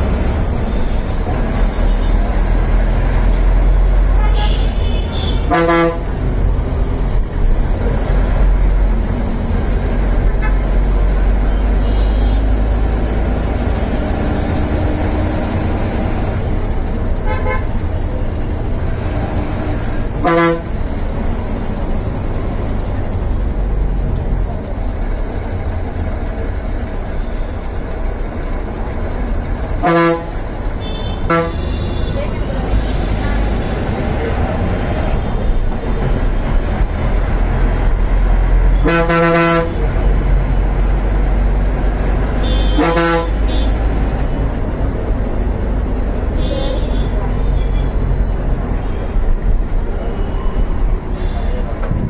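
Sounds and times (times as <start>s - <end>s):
bus engine and road rumble: 0.0s - 52.0s
vehicle horn honks: 4.2s - 6.1s, 17.2s - 17.7s, 20.2s - 20.7s, 29.8s - 32.3s, 42.4s - 43.7s.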